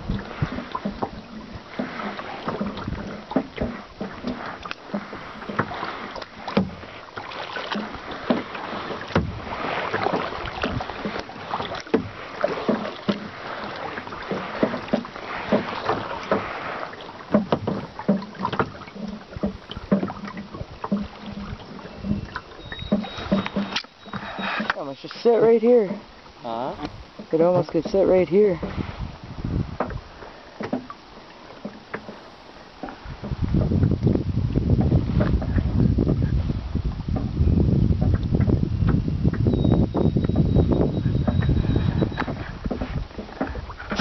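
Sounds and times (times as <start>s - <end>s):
paddle splashing water: 0.0s - 44.0s
knocks against plastic hull: 9.1s - 11.2s, 17.3s - 22.2s, 29.7s - 30.0s.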